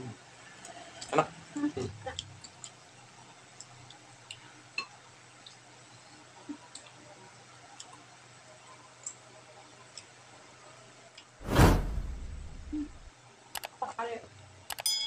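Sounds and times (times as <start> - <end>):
soft clicks of people eating: 0.6 - 2.8, 3.5 - 4.5, 5.4 - 5.7, 6.4 - 7.0, 7.7 - 8.1, 8.7 - 9.2, 14.7 - 14.9.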